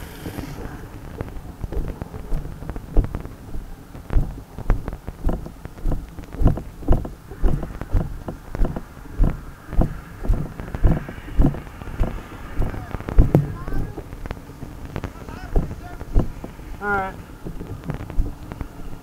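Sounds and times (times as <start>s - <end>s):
rustling and knocks: 0.0s - 16.6s.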